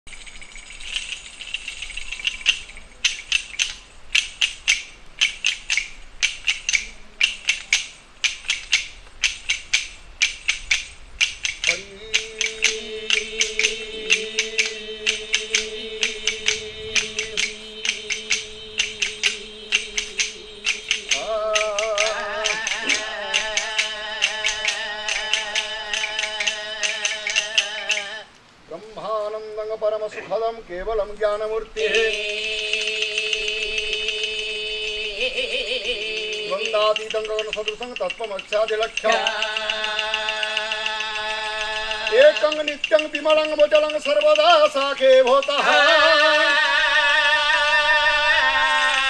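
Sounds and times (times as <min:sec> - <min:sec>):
wooden clappers with jingles: 0:00.1 - 0:28.2, 0:31.2 - 0:46.5
steady drone: 0:11.7 - 0:28.0.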